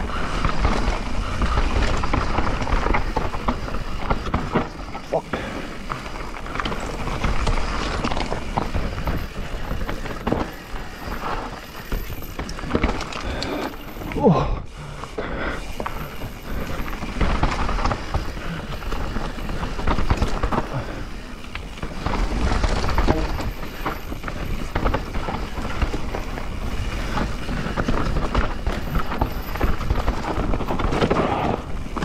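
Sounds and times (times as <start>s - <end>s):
bike tyres crunching over dirt: 0.0s - 32.0s
chain and frame rattling: 6.2s - 14.4s, 15.6s - 21.1s, 21.7s - 32.0s.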